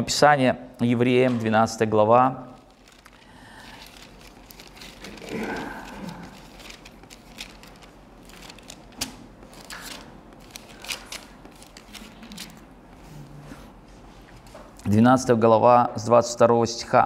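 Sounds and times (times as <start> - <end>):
pages rustling and turning: 2.6 - 13.3.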